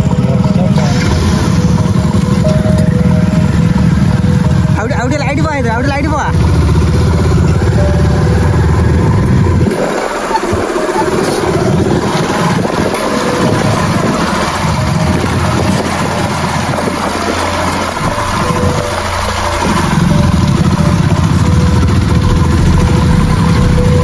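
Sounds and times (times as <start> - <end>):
motorcycle engines running: 0.0 - 24.0.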